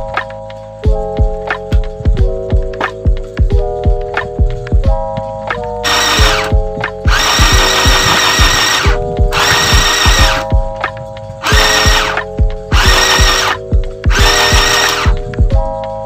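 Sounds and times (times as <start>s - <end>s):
background music with beat: 0.0s - 16.0s
sewing machine running: 5.8s - 6.5s, 7.1s - 10.4s, 11.4s - 12.2s, 12.8s - 15.1s.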